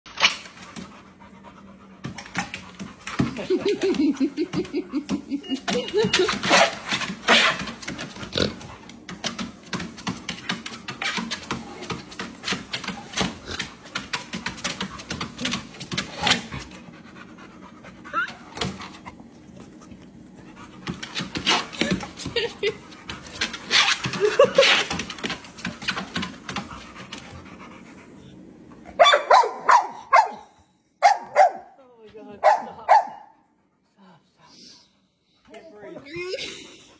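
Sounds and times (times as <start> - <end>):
dog claws tapping on treadmill: 2.0 - 16.8, 20.8 - 27.4
dog barking: 29.0 - 31.7, 32.4 - 33.4.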